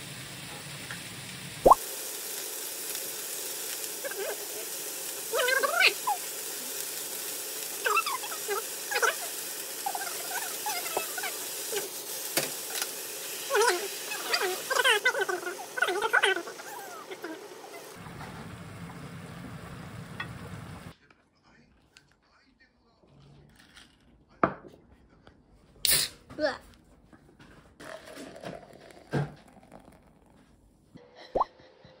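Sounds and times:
cabbage sizzling in a pan: 0.0s - 20.9s.

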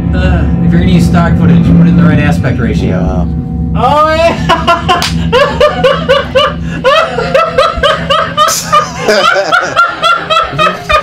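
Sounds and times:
people laughing hard: 4.3s - 11.0s.

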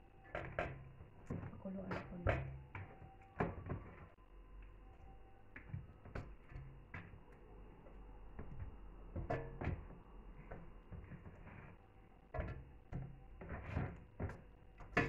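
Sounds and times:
kitchenware knocking and clunking: 9.1s - 9.9s.

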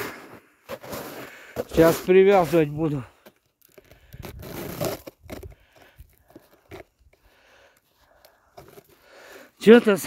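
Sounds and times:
footsteps crunching in snow: 0.0s - 3.0s.

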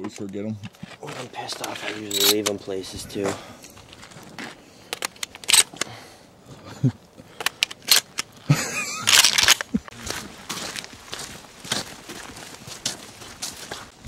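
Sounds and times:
sharp handling clicks and knocks: 0.0s - 2.6s, 3.9s - 6.0s, 7.4s - 9.8s
footsteps on gravel: 0.6s - 5.8s, 7.7s - 14.0s.

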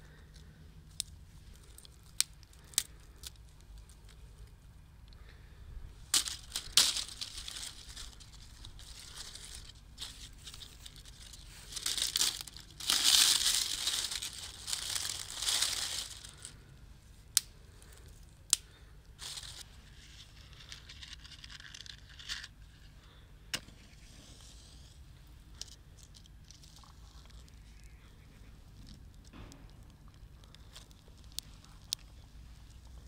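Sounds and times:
crinkling and tearing handling noises: 0.1s - 5.4s, 6.0s - 16.7s, 17.3s - 23.2s, 28.7s - 33.0s.

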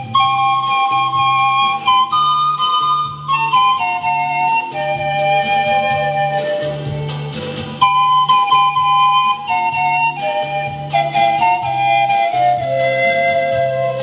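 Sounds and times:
pan flutes playing melody: 0.0s - 14.0s.

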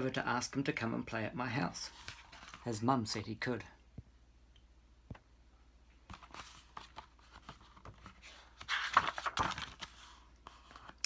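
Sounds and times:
page being turned: 1.9s - 2.8s, 6.1s - 11.0s
paper rustles and taps: 6.1s - 11.0s.

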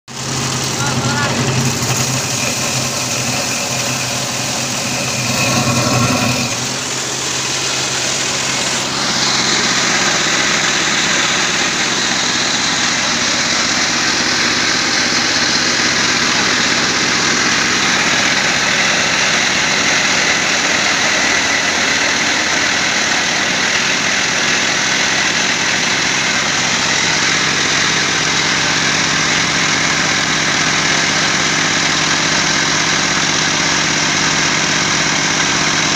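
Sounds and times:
machine hum: 0.1s - 35.4s
corn kernels grinding: 0.2s - 11.6s.

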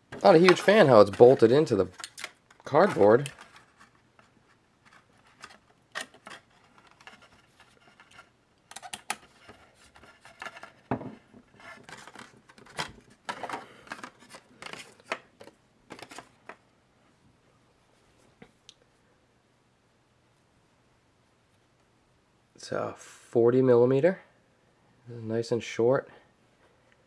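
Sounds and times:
cardboard rustling: 0.0s - 8.3s, 9.2s - 16.6s.

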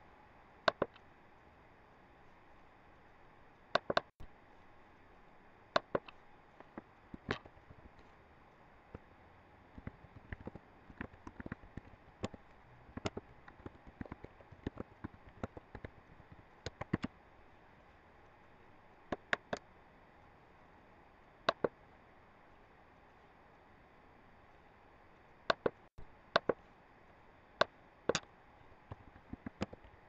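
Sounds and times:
mouse clicks: 0.7s - 1.0s, 9.8s - 17.1s, 19.1s - 19.6s, 21.5s - 21.7s, 25.5s - 25.8s, 26.4s - 26.6s
keyboard typing: 9.8s - 17.1s, 26.4s - 26.6s, 28.9s - 30.0s.

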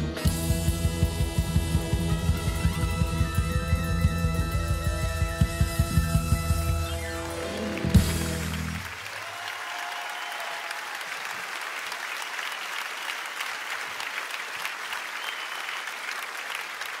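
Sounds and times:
audience applauding: 4.3s - 17.0s.

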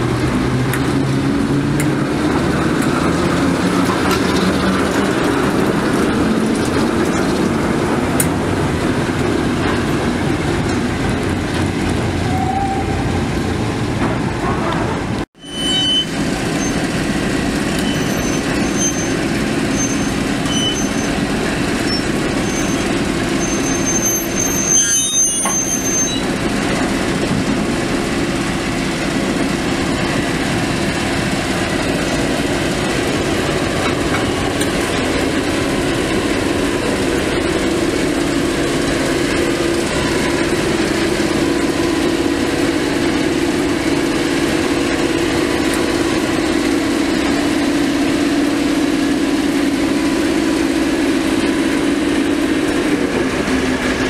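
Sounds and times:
diesel locomotive engine droning: 0.0s - 54.0s
high-pitched squeaks: 14.4s - 16.8s, 17.8s - 26.3s.

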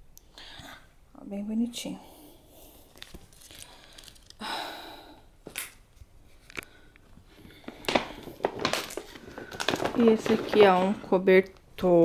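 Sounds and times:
clothes and packaging rustling: 2.6s - 4.8s, 5.4s - 12.0s.

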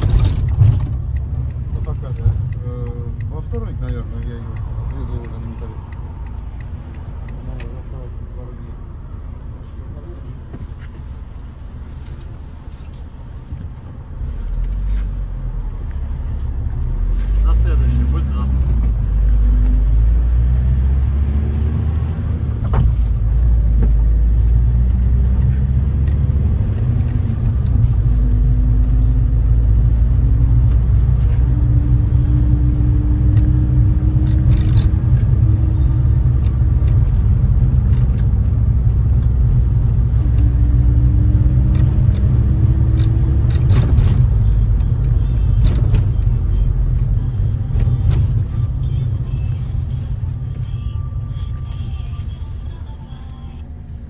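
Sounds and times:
clicks and rattles in vehicle cabin: 0.0s - 5.7s, 33.3s - 35.4s, 41.6s - 46.5s
engine and road rumble: 0.0s - 54.0s.

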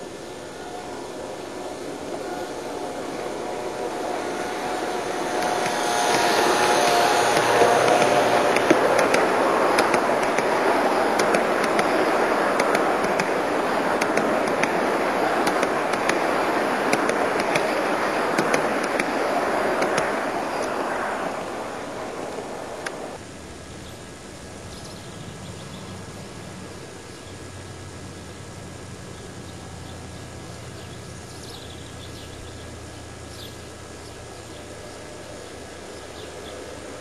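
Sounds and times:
wheels clicking over rail joints: 0.0s - 23.2s
model train wheels rumbling on rail: 0.0s - 37.0s.

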